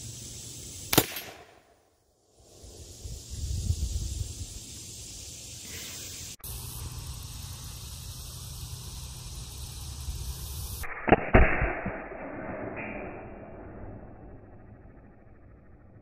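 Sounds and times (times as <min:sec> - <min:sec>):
outdoor background hiss: 0:00.0 - 0:10.9
revolver gunshot: 0:00.9 - 0:01.8, 0:10.8 - 0:14.2.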